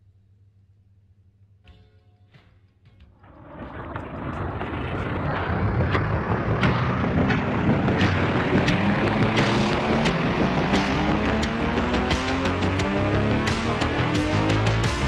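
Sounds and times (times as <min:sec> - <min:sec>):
tape static rushing noise: 0:03.2 - 0:14.1.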